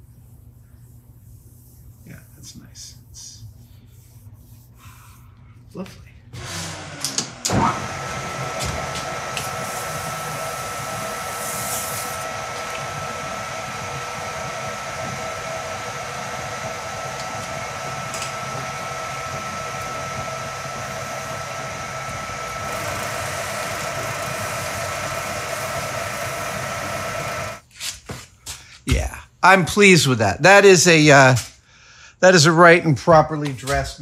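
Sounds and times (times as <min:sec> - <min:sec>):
metal lathe whining: 0:06.4 - 0:27.6.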